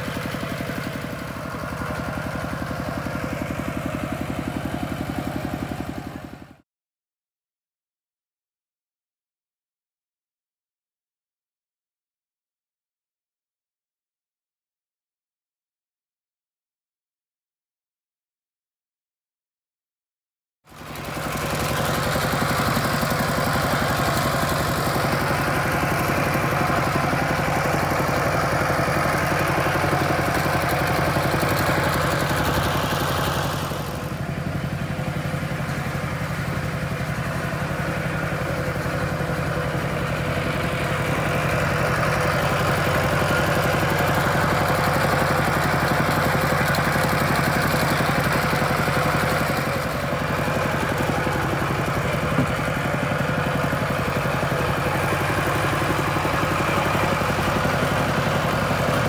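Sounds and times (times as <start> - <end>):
diesel engine chugging: 0.0 - 6.6, 20.7 - 59.0.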